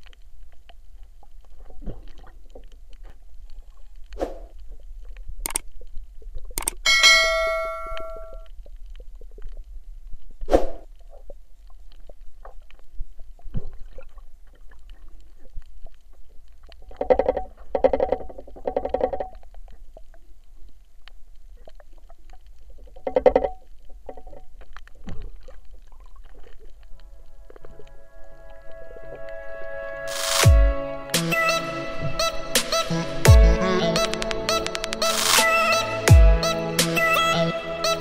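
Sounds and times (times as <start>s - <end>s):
sharp click: 5.4s - 5.6s, 6.6s - 8.1s.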